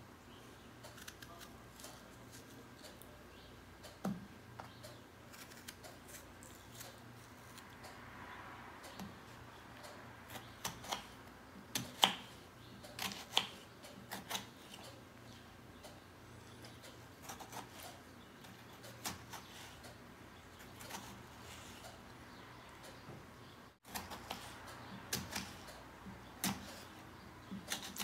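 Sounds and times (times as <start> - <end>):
knife cutting tomato: 0.9 - 3.1, 5.3 - 7.7, 10.3 - 15.0, 16.6 - 19.9, 20.6 - 22.0, 23.8 - 28.0.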